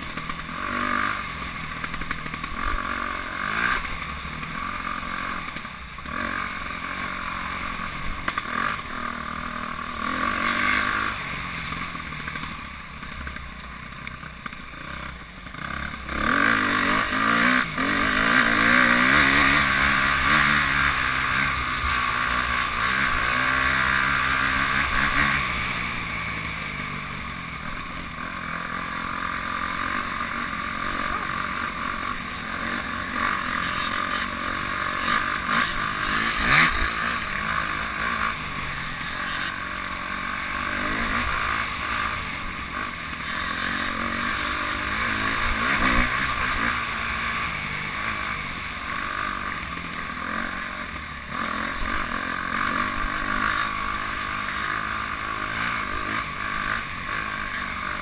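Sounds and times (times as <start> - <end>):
dirt bike engine revving: 0.0 - 58.0
wind: 0.0 - 58.0
rattle: 31.5 - 46.7.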